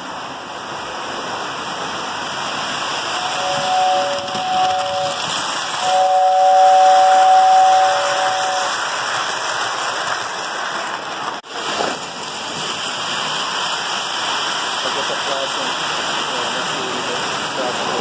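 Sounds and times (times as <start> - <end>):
model trains rumbling on track: 0.0 - 18.0
model train whistle: 3.2 - 8.8.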